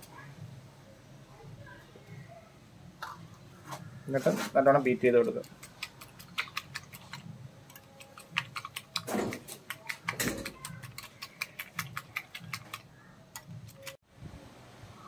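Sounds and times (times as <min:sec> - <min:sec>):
whisk clicking against glass bowl: 0:05.1 - 0:12.8.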